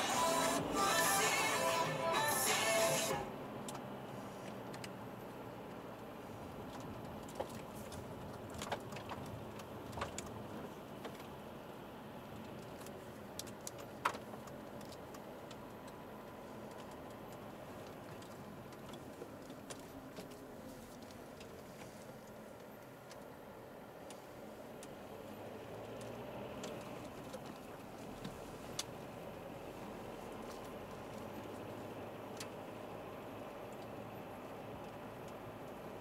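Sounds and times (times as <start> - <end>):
car cabin drive noise: 0.0 - 36.0
light clicks and taps: 4.4 - 5.8.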